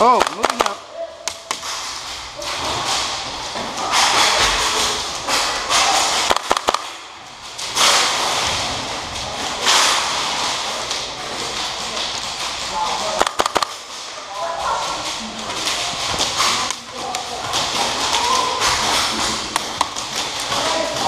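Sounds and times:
sharp clicks: 6.3s - 6.9s, 13.2s - 13.8s.

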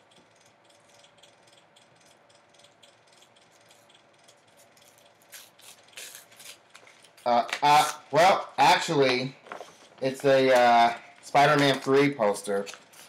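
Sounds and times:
paper poster crinkling: 8.9s - 10.6s, 11.2s - 13.0s
paper rustling: 9.1s - 10.2s.

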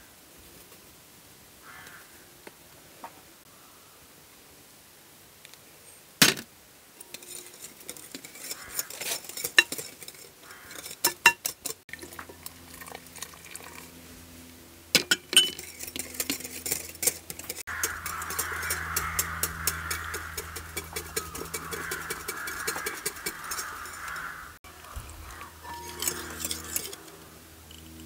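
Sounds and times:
whisk clinking in glass bowl: 15.0s - 24.0s.

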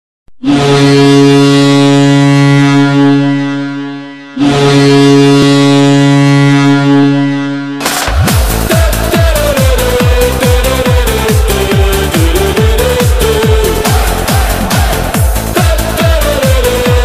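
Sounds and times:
low goal horn blasts: 0.4s - 17.0s
electronic dance music: 7.8s - 17.0s.

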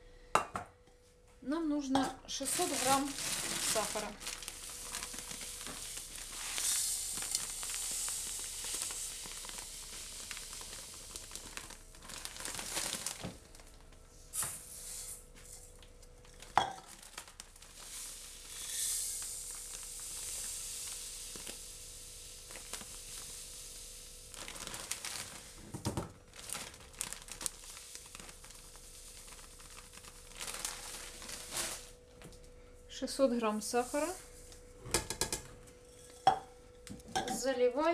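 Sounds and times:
plastic bag crinkling: 2.2s - 14.0s, 15.7s - 21.6s, 22.4s - 23.6s, 24.2s - 32.0s
sugar grains pouring: 2.4s - 13.2s, 16.4s - 25.6s, 26.7s - 31.9s.

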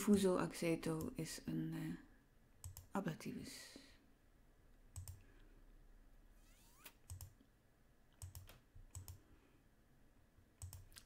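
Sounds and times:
faint mouse clicks: 4.9s - 5.5s, 8.1s - 9.2s, 10.6s - 11.0s.

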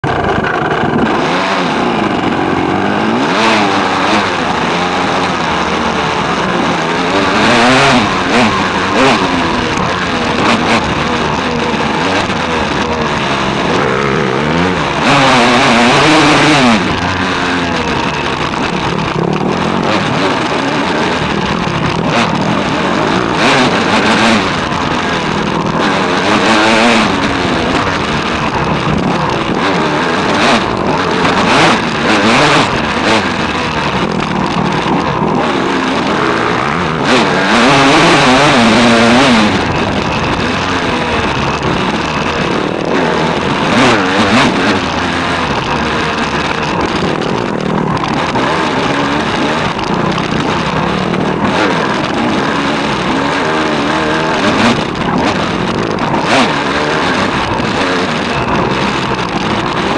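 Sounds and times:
dirt bike engine revving: 0.0s - 59.9s
wind noise: 0.0s - 59.9s.

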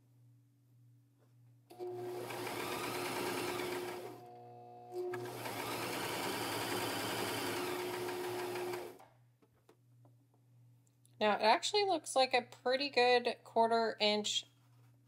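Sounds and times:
electric sewing machine stitching: 1.7s - 9.0s.

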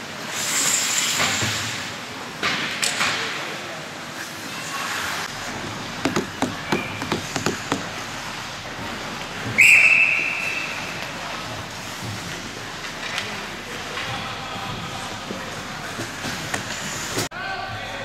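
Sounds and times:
sharp knocks: 6.0s - 8.0s
referee's whistle blast: 9.6s - 10.9s.

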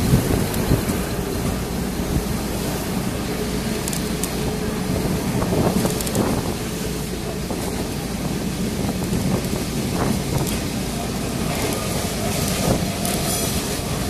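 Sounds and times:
wind on microphone: 0.0s - 3.0s, 4.4s - 14.0s
tram wheels rumbling on rails: 0.0s - 14.0s.

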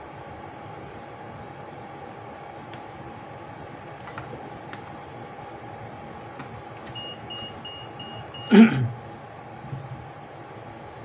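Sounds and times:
faint steady tone: 6.9s - 8.8s.

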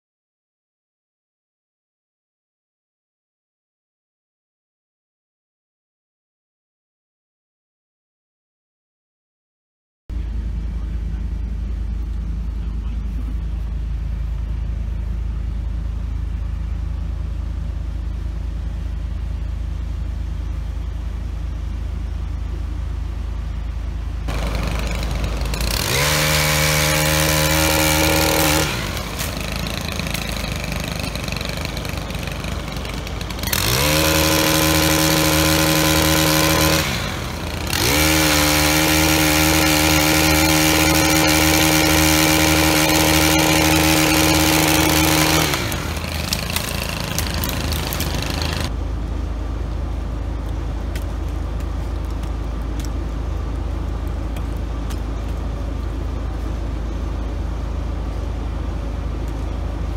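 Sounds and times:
chainsaw engine idling rumble: 10.1s - 59.9s
chainsaw at full throttle: 24.3s - 48.8s.

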